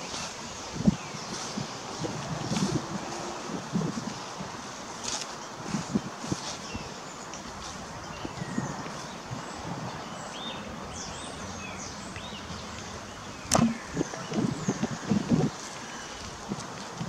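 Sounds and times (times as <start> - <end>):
outdoor background noise: 0.0 - 17.0
small birds chirping: 0.0 - 17.0
sharp click: 13.5 - 13.8
loud dull thumps: 13.5 - 15.4.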